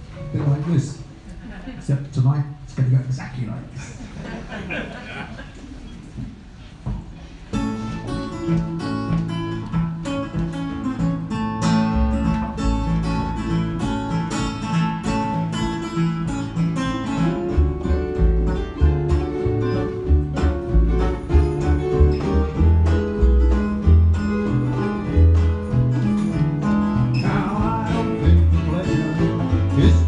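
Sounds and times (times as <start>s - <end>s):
strummed acoustic guitar: 7.5s - 30.0s
picked melody: 7.6s - 30.0s
deep low notes: 17.3s - 30.0s.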